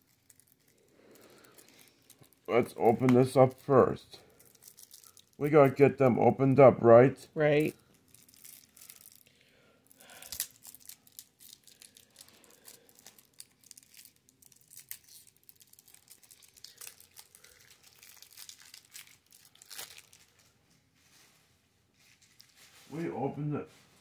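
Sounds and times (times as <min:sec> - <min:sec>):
card wrapper crinkling and tearing: 0:00.0 - 0:05.8, 0:07.6 - 0:20.5.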